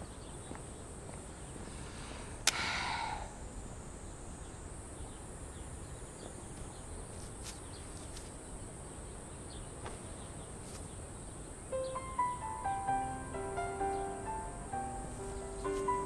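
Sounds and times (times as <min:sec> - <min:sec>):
insects droning: 0:00.0 - 0:16.0
faint ticks: 0:02.4 - 0:02.8.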